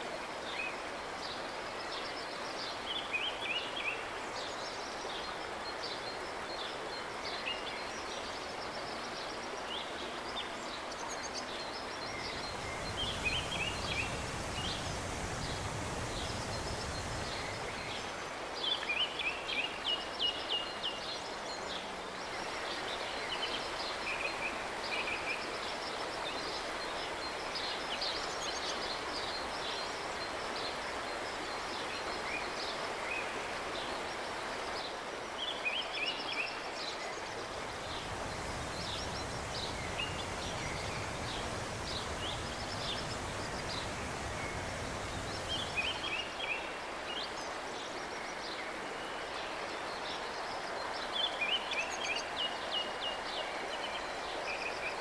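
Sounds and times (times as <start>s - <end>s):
songbirds chirping: 0.0s - 55.0s
water rushing over rocks: 11.5s - 19.0s, 36.2s - 47.8s.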